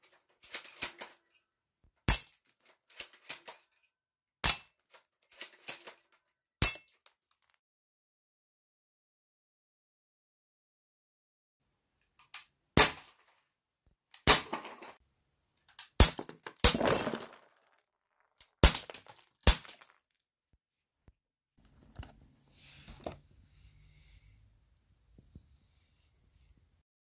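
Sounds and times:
glass breaking: 16.0s - 17.7s, 18.6s - 20.0s.

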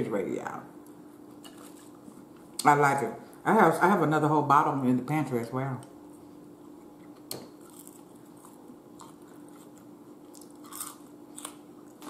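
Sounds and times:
faint steady hum: 0.0s - 12.0s
chewing crunchy fries: 1.2s - 2.6s, 6.1s - 12.0s.

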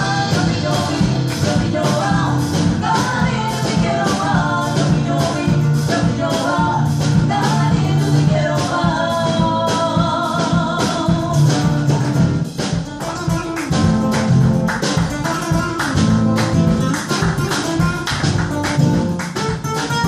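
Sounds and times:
woman singing: 0.0s - 12.3s
acoustic guitar: 0.0s - 20.0s
drum kit: 0.0s - 20.0s.

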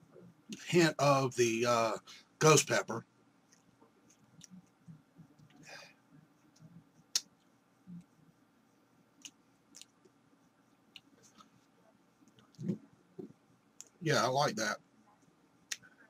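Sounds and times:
lip smacks and tongue clicks: 9.2s - 10.0s.

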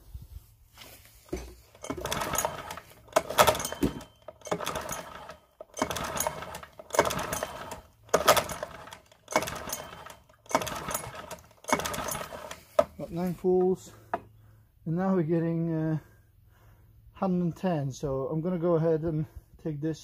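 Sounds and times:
recoil starter cord pulls: 1.3s - 13.2s.

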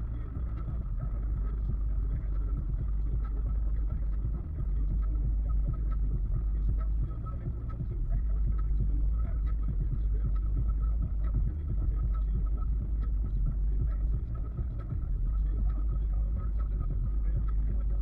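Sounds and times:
faint steady whine: 0.0s - 18.0s
road and engine rumble: 0.0s - 18.0s.

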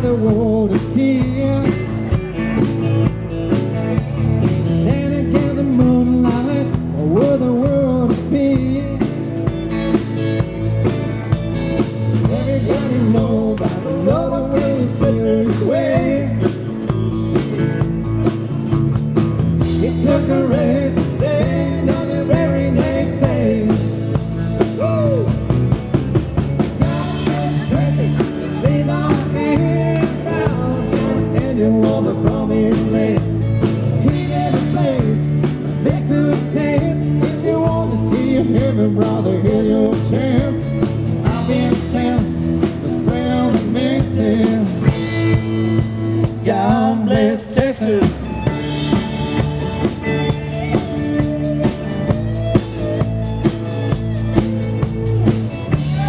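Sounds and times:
acoustic guitar: 0.0s - 56.0s
bass guitar: 0.0s - 56.0s
drums: 0.0s - 56.0s
electric guitar: 0.0s - 56.0s
person singing: 11.9s - 16.7s, 19.7s - 25.5s, 26.8s - 45.3s, 46.4s - 53.1s, 55.6s - 56.0s.

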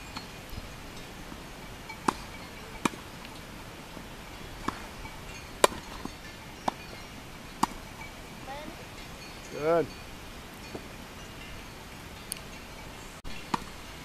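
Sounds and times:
tennis ball hitting racket: 2.0s - 3.0s, 5.6s - 6.0s, 7.6s - 7.8s.

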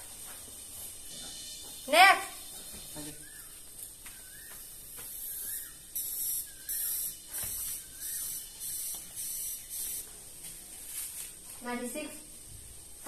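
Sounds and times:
spray bottle hissing squirts: 4.6s - 10.2s.

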